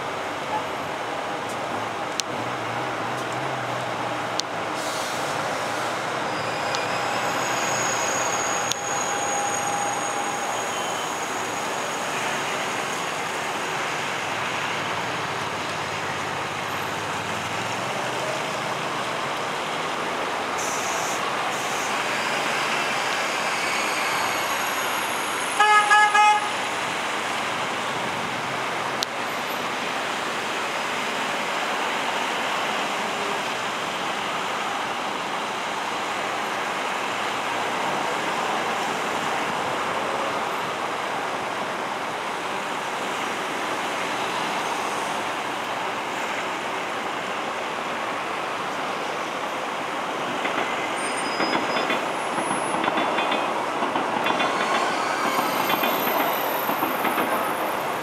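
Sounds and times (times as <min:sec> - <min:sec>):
road traffic: 0:00.0 - 0:58.0
train rolling rumble: 0:26.6 - 0:58.0.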